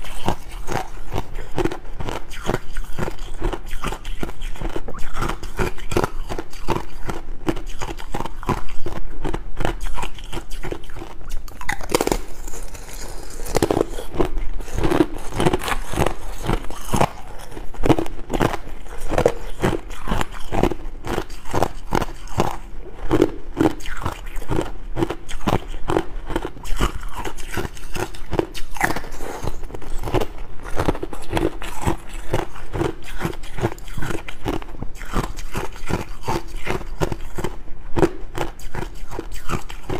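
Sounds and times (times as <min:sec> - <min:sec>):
ice crunching between teeth: 0:00.0 - 0:39.9.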